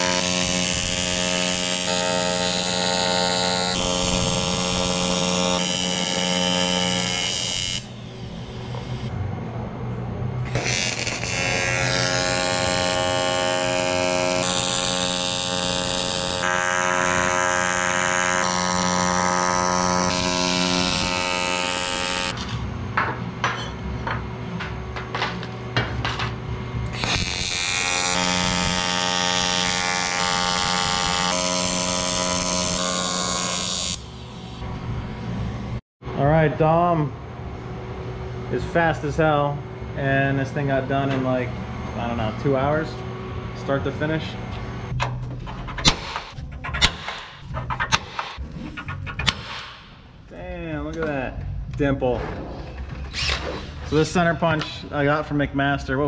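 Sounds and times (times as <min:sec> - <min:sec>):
welding arc buzzing: 0:00.0 - 0:09.2, 0:10.4 - 0:22.8, 0:24.5 - 0:35.8, 0:45.7 - 0:50.4.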